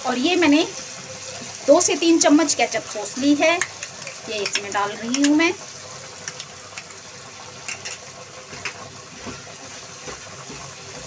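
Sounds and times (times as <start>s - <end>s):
vegetables sizzling in a pan: 0.0s - 11.0s
spatula stirring in a pan: 3.1s - 11.0s.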